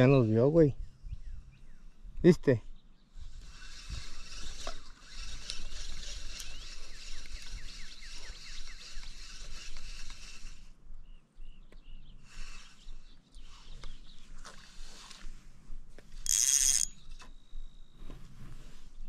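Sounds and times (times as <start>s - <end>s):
wind rumble on microphone: 0.0s - 2.3s
fishing reel whirring and ticking: 3.3s - 10.7s, 16.2s - 17.6s.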